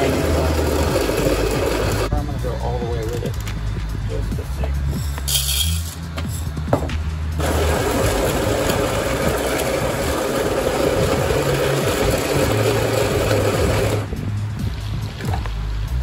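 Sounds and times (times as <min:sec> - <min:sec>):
coffee grinder grinding beans: 0:00.0 - 0:02.1, 0:07.4 - 0:14.1.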